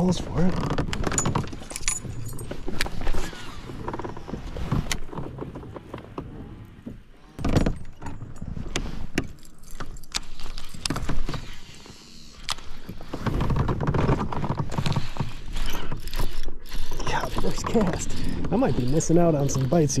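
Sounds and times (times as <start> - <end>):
fishing reel clicks and rattles: 15.5 - 20.0.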